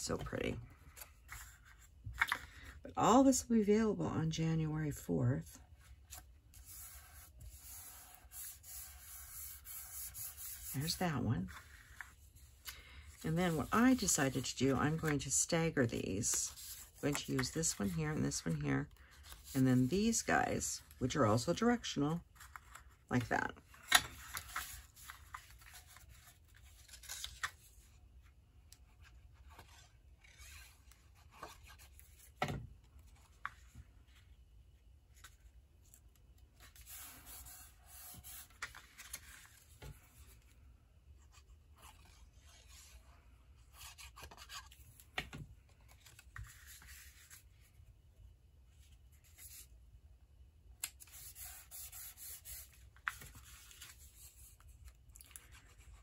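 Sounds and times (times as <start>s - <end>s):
paper sliding and rubbing: 6.1s - 12.6s, 13.2s - 15.3s, 16.3s - 20.2s, 36.6s - 39.8s, 45.9s - 47.5s.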